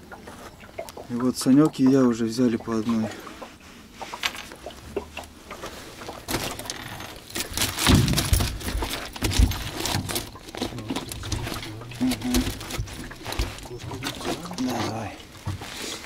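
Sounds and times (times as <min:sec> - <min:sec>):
net rustling: 0:06.2 - 0:16.0
clatter of knocks and clicks: 0:06.3 - 0:14.4.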